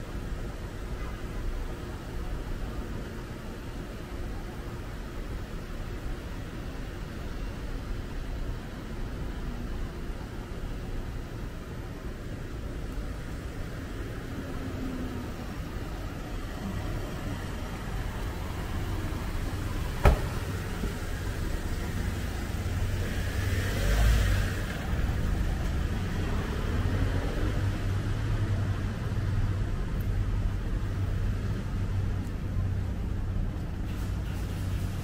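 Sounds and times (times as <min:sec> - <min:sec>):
traffic rumble: 0:00.0 - 0:35.0
car passing: 0:14.4 - 0:28.6
sharp knock: 0:20.0 - 0:20.4.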